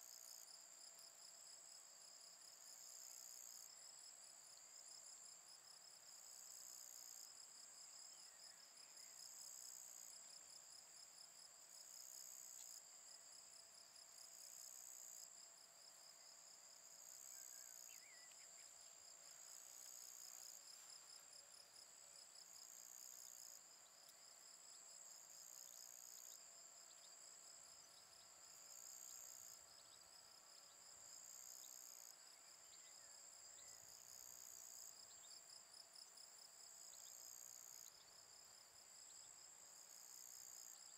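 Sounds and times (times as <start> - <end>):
higher insect call: 16.1 - 35.5
insects trilling: 17.0 - 21.2.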